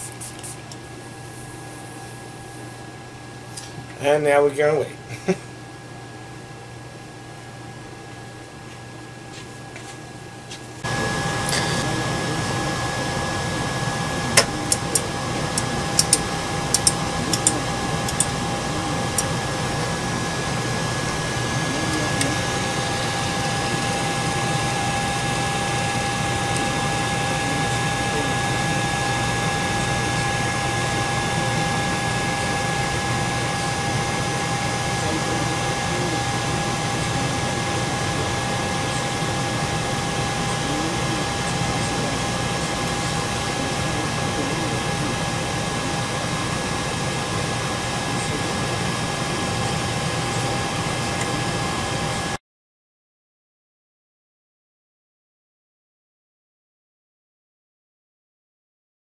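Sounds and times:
printer fan whir: 0.0s - 52.4s
steady tone: 10.8s - 52.4s
sharp clicks: 14.4s - 18.3s.

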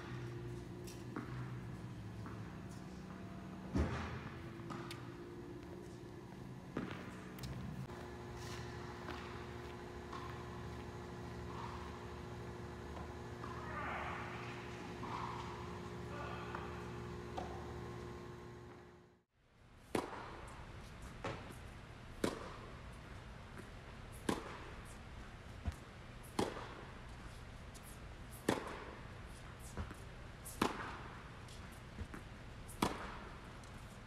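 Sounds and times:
tennis racket hitting ball: 0.0s - 18.5s, 22.2s - 22.7s, 24.2s - 24.7s, 26.4s - 26.8s, 28.3s - 28.9s, 29.7s - 31.0s, 32.1s - 33.3s.

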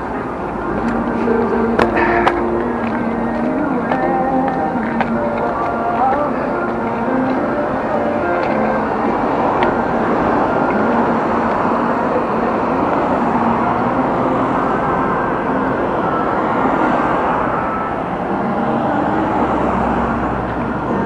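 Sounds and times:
traffic rushing: 0.0s - 21.0s.

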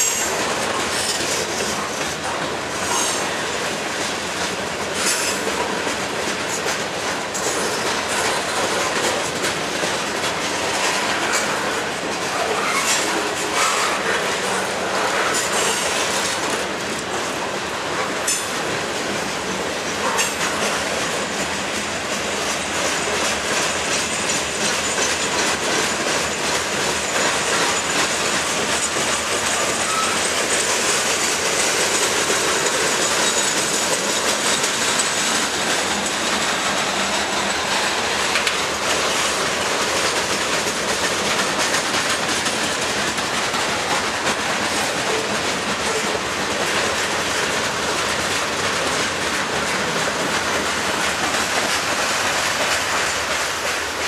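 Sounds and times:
clickety-clack over rail joints: 0.0s - 54.0s
freight train wheels on rail: 0.0s - 54.0s
high wheel squeal: 12.3s - 14.2s, 29.1s - 30.7s.

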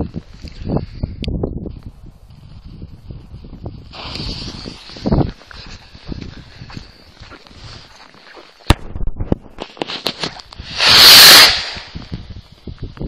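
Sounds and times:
firework rushing hiss: 3.9s - 5.8s, 9.6s - 13.0s
firework crackles: 3.9s - 6.0s, 9.5s - 13.0s.

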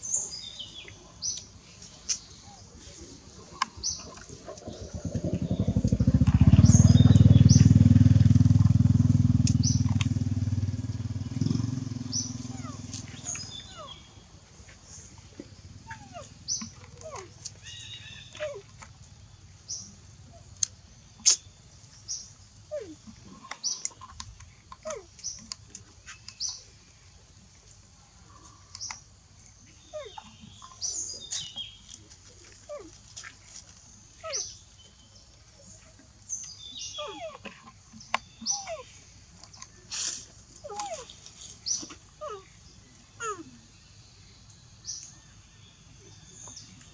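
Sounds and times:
high chirps and squeaks: 38.4s - 38.8s.

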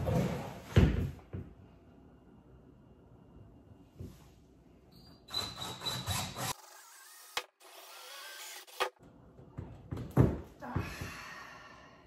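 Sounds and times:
cordless drill with hole saw: 5.3s - 8.9s.

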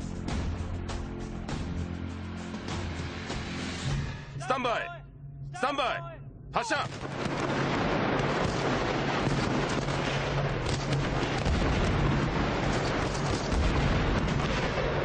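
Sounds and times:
rifles firing rapidly: 8.2s - 15.0s.

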